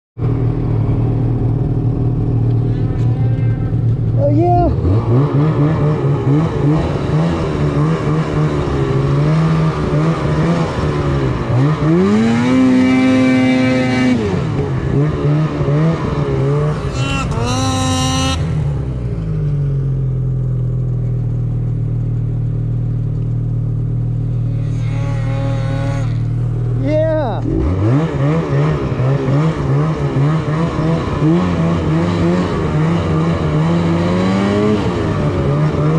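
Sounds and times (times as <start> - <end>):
snowmobile engine revving: 2.1 - 19.1, 24.2 - 35.9.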